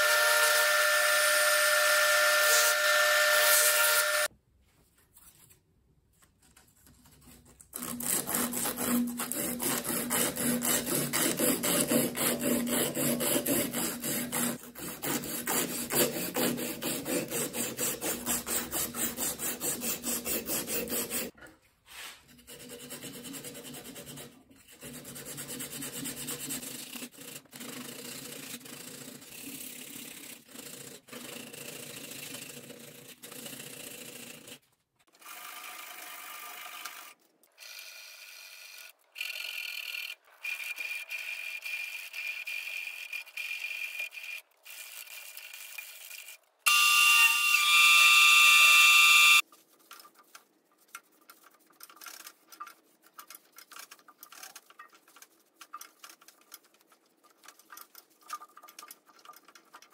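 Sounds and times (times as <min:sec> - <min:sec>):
sandpaper rubbing on wood: 0:07.8 - 0:21.3, 0:21.9 - 0:34.6.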